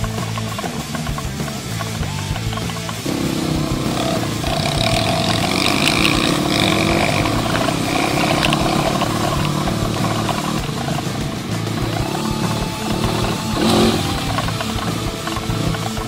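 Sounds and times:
dirt bike engine running: 0.0s - 16.0s.

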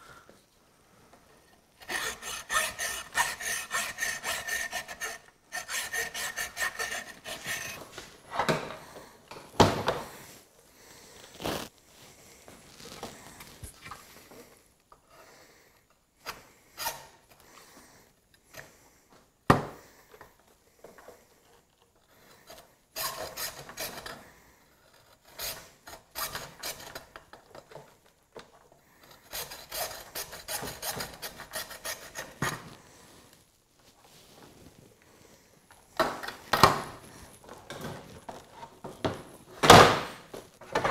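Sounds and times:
hacksaw sawing: 1.8s - 7.8s, 23.0s - 24.1s, 29.1s - 32.6s.

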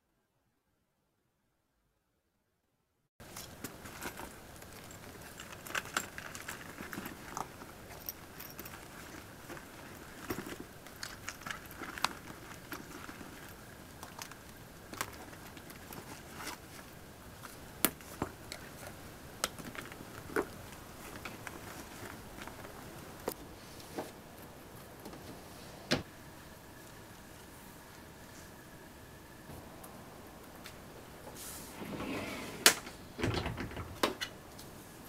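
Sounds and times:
rustling of pouches in handbag: 3.2s - 23.4s.

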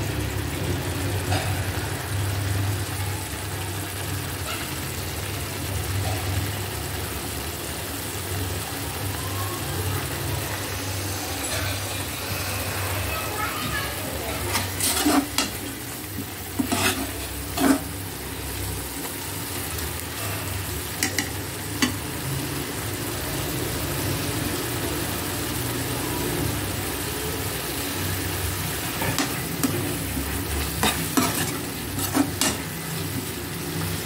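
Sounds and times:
curry sizzling in metal pan: 0.0s - 34.0s
metal spoon scraping and clinking: 14.4s - 15.9s, 16.5s - 18.0s, 28.8s - 32.8s.

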